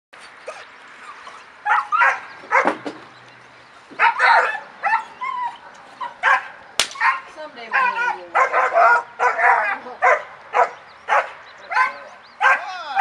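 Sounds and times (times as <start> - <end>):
puppy barking: 1.6 - 2.8, 4.0 - 12.7.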